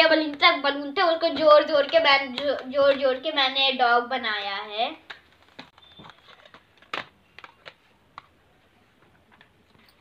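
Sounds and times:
rubber balloons squeaking: 5.7s - 7.4s.

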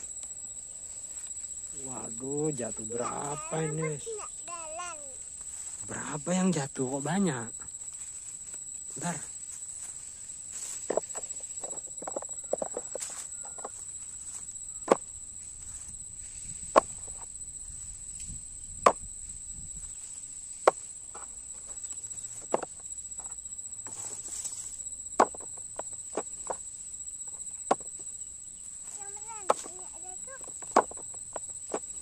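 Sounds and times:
sugarcane knocking on plastic: 25.2s - 26.6s, 27.7s - 28.0s, 29.4s - 29.8s, 30.4s - 32.0s.

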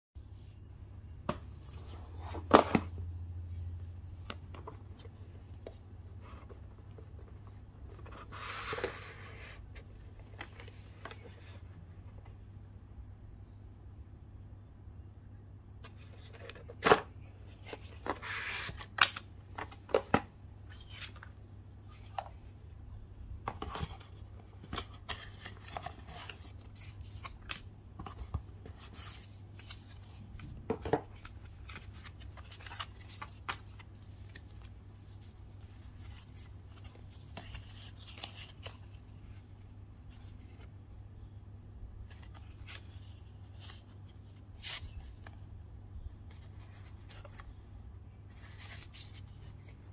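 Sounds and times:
cardboard and paper being handled: 3.8s - 11.7s, 23.4s - 40.7s, 42.0s - 45.4s, 46.2s - 49.9s.

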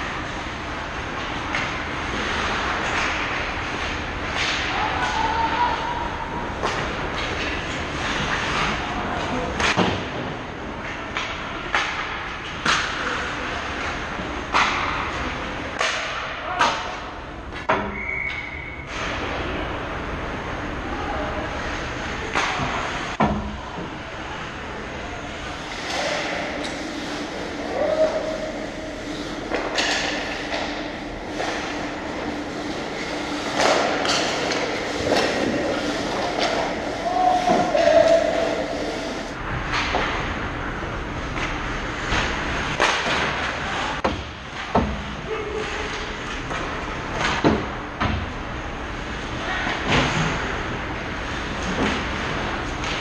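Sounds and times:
steady hum: 0.0s - 53.0s
skates scraping on ice: 25.4s - 39.2s
hockey sticks clacking on puck: 25.5s - 38.6s.

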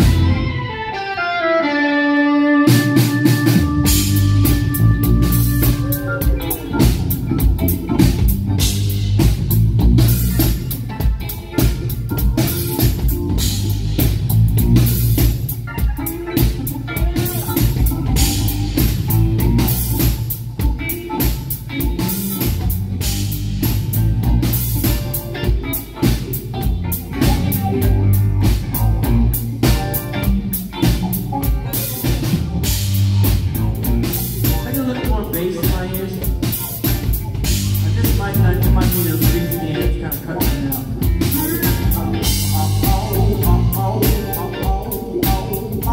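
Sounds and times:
drum kit beat: 0.0s - 0.9s, 2.6s - 45.9s
electric guitars: 0.0s - 45.9s
keyboard: 0.0s - 45.9s.

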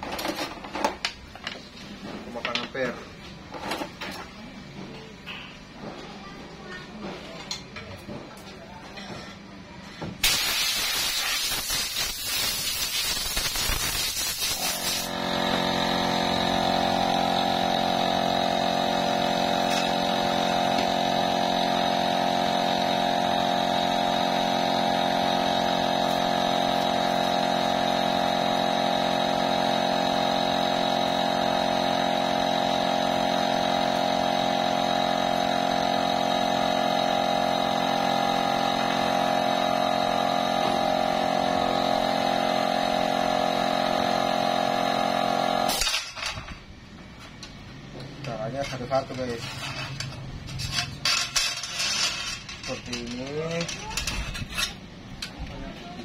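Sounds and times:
loud rushing hiss: 10.2s - 15.3s.

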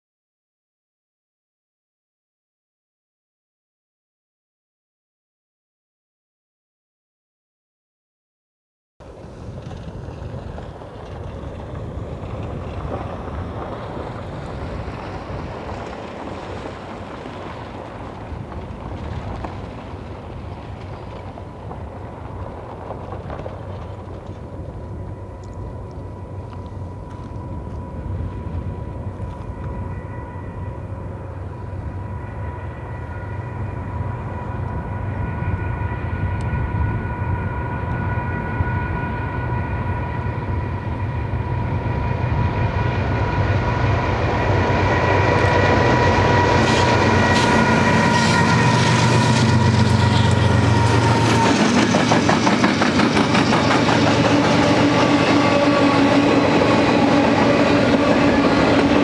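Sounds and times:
rail cars clacking over joints: 9.0s - 34.8s, 40.2s - 59.0s
diesel locomotive rumble and whine: 9.0s - 59.0s.

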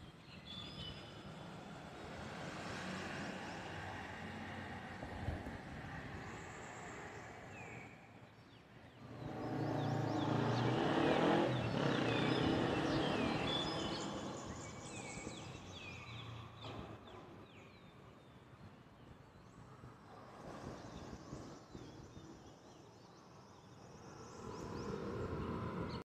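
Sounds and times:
vehicle passing: 2.0s - 5.2s, 9.0s - 15.5s, 24.3s - 26.0s.

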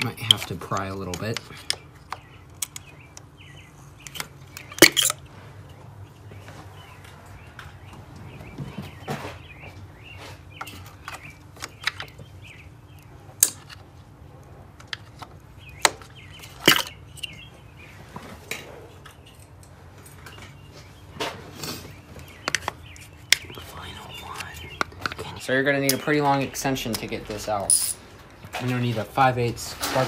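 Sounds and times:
clicks and knocks of engine parts: 0.0s - 9.8s.

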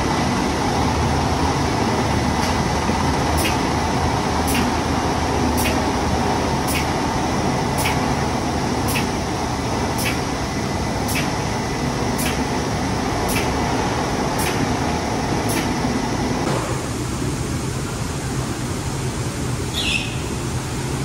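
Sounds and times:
sharp machine clicks: 3.4s - 3.7s, 4.4s - 4.8s, 5.6s - 5.9s, 6.6s - 7.0s, 7.8s - 8.1s, 8.8s - 9.2s, 10.0s - 10.3s, 11.1s - 11.4s, 12.2s - 12.5s, 13.3s - 13.6s, 14.4s - 14.7s, 15.5s - 15.8s.

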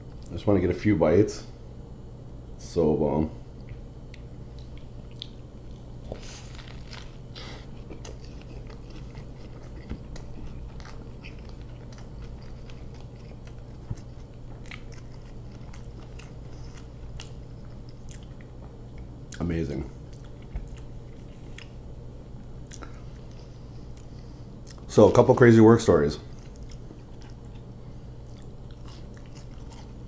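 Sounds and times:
low steady hum: 0.0s - 30.0s
mouth clicks and smacks: 3.6s - 5.9s
person chewing food: 3.6s - 19.4s, 20.0s - 21.9s, 22.6s - 24.9s, 26.3s - 30.0s.

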